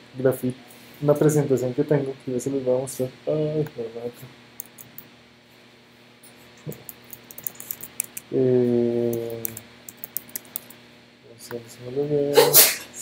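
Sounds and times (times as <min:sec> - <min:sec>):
keyboard and mouse clicks: 0:04.6 - 0:05.1, 0:06.6 - 0:08.3, 0:09.1 - 0:10.8
man humming low mmm: 0:08.3 - 0:09.6.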